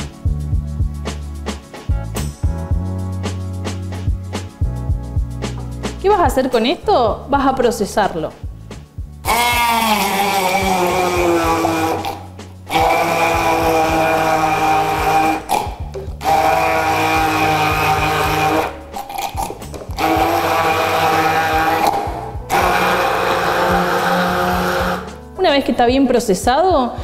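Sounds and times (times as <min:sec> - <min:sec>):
immersion blender running: 0:09.2 - 0:25.2.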